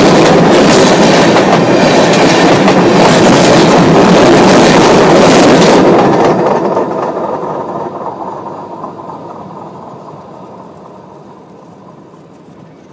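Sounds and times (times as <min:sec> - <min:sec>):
train rumbling on track: 0:00.0 - 0:12.9.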